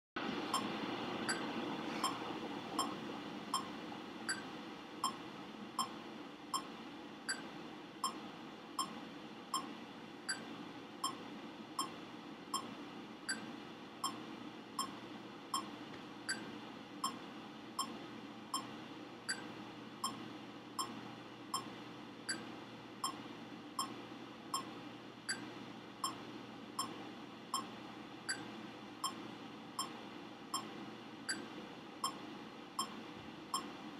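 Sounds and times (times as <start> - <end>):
metronome ticking: 4.3 - 5.2.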